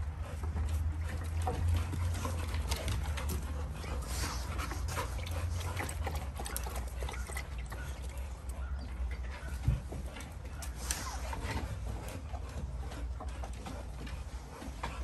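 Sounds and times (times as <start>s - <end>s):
dogs sniffing and breathing: 0.0s - 15.0s.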